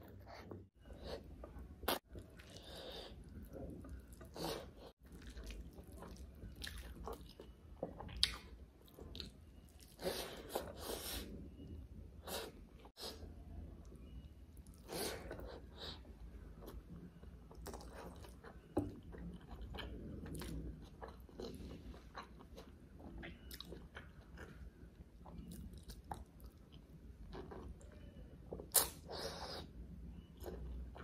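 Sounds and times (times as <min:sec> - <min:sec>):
person chewing: 0:01.0 - 0:11.3, 0:17.5 - 0:24.6.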